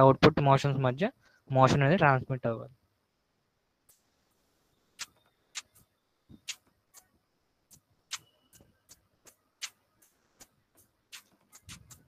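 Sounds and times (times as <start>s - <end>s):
sharp short clicks: 5.0s - 7.1s, 7.7s - 12.0s.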